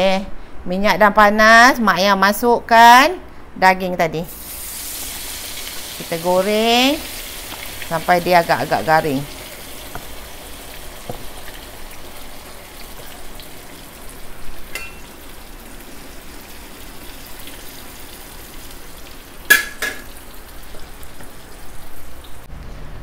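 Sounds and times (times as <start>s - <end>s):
meat sizzling in hot oil: 4.3s - 22.4s
metal spatula clinking on wok: 14.7s - 15.1s.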